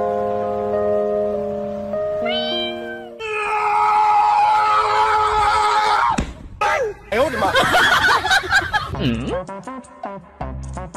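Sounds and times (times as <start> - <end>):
background music stepped notes: 0.0 - 3.1.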